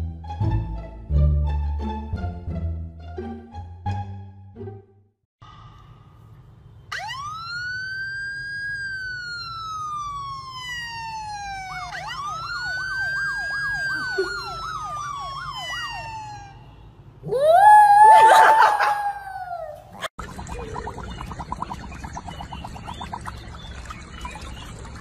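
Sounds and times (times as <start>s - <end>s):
siren wail: 6.9s - 20.7s
fast siren yelp: 6.9s - 21.0s.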